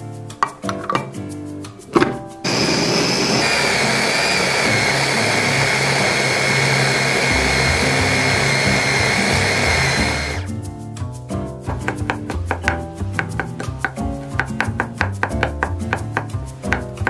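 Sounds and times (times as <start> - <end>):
electric food chopper whining: 2.4 - 10.5.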